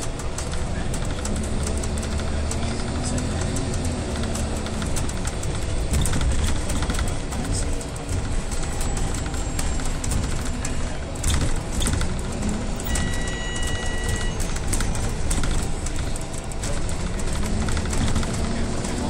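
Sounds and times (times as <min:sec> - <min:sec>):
body rattles and knocks: 0:00.0 - 0:19.0
bus drivetrain and road rumble: 0:00.0 - 0:19.0
high steady tone: 0:12.6 - 0:14.6.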